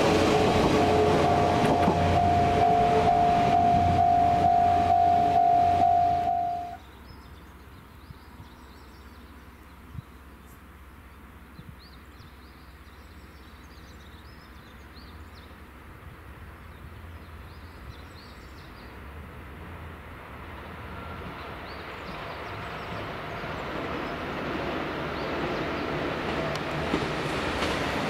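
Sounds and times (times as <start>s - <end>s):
distant train rumble: 0.0s - 6.9s, 13.7s - 28.0s.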